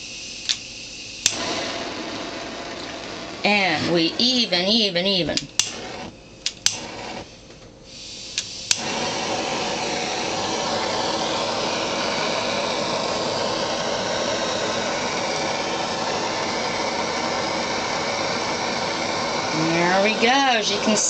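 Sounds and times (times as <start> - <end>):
torch flame hissing: 0.0 - 21.0
torch sharp clicks: 1.2 - 4.4, 5.3 - 7.2, 8.3 - 9.6.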